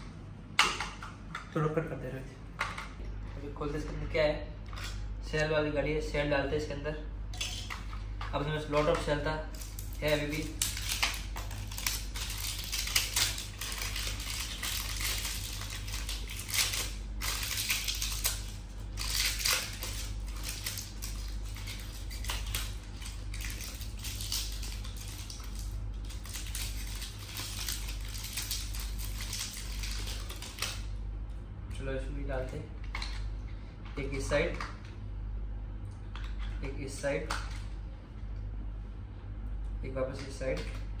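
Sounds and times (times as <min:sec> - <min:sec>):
steady low hum: 0:00.0 - 0:41.0
plastic wrapping crinkling and tearing: 0:09.4 - 0:30.9.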